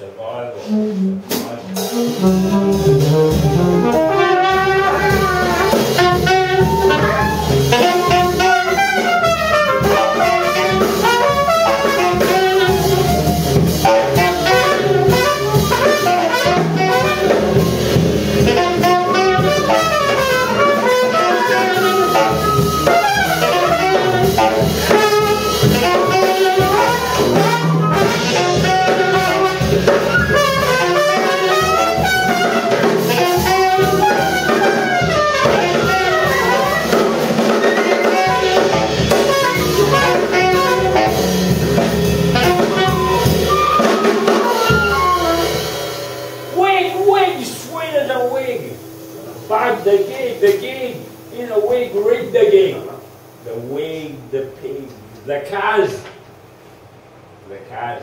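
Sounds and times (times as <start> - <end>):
drum kit: 0.0 - 57.9
saxophone: 0.4 - 46.0
trumpet: 0.6 - 53.5
flute: 3.8 - 45.9.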